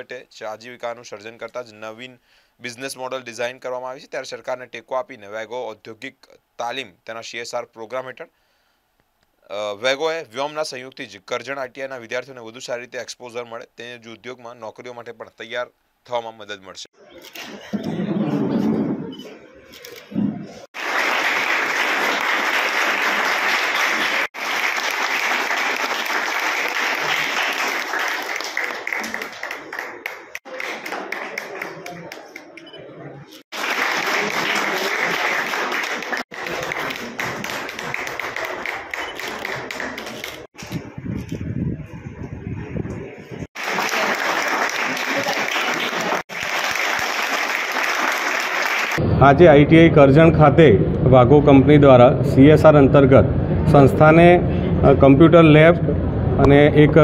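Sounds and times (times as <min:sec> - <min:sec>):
audience applause: 0:20.7 - 0:32.6, 0:33.5 - 0:40.5, 0:43.5 - 0:49.0
people clapping: 0:20.7 - 0:32.8, 0:33.5 - 0:40.5, 0:43.5 - 0:49.0.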